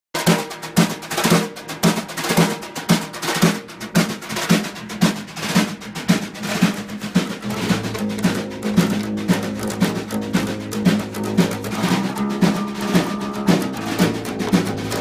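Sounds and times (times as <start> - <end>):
drums playing steady beat: 0.1 - 15.0
held low instrument note: 11.1 - 15.0.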